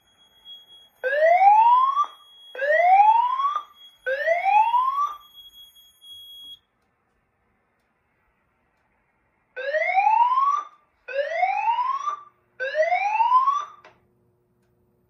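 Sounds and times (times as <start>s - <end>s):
emergency whoop siren: 1.0s - 5.2s, 9.6s - 13.8s.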